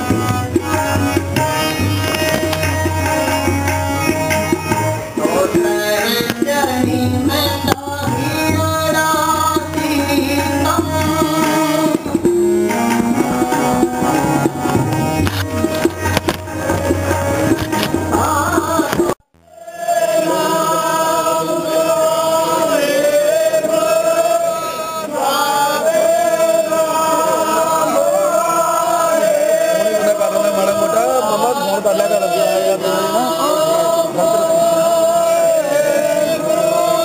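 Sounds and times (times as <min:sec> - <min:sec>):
music track with tabla: 0:00.0 - 0:37.0
men chanting in unison: 0:19.5 - 0:37.0.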